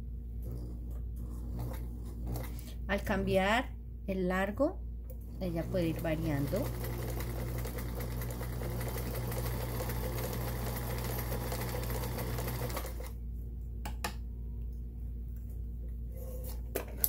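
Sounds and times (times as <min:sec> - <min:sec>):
sewing machine stitching: 0:00.4 - 0:02.6, 0:05.4 - 0:13.1.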